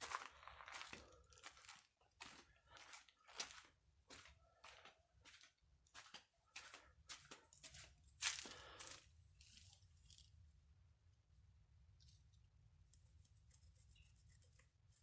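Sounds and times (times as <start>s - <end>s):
footsteps crunching on sand: 0.0s - 9.8s.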